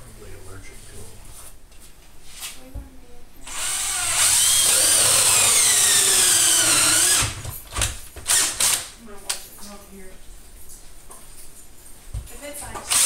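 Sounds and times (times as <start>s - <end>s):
cordless drill cutting drywall: 3.4s - 7.5s, 8.2s - 8.9s
short drill spurts: 3.5s - 7.4s.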